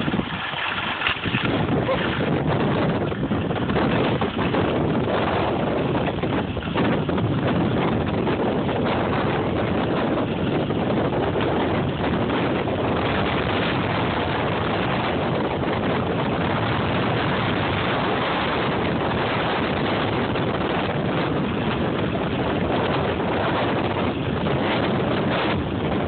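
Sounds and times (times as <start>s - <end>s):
skis sliding on snow: 0.0s - 2.4s
wind rushing over microphone: 0.0s - 26.0s.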